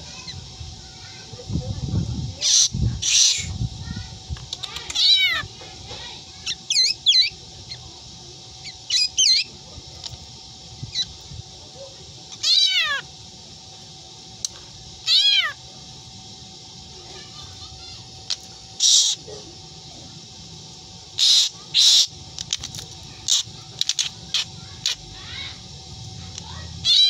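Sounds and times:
harsh rasping bird calls: 2.4 - 7.9, 8.5 - 10.2, 10.8 - 11.2, 12.2 - 13.3, 14.3 - 16.0, 17.0 - 19.4, 20.9 - 27.0
bird imitating cat meows: 4.8 - 5.5, 12.4 - 13.1, 15.0 - 15.6.

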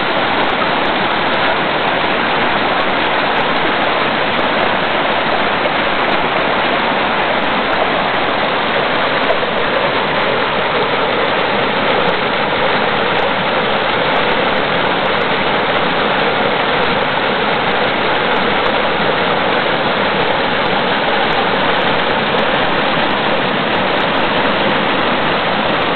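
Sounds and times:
river water rushing over boulders: 0.0 - 25.9.

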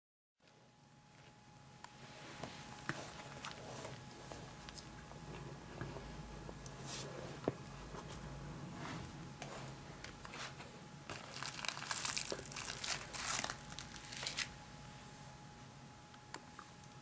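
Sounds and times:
plastic and paper crinkling: 10.0 - 14.5.

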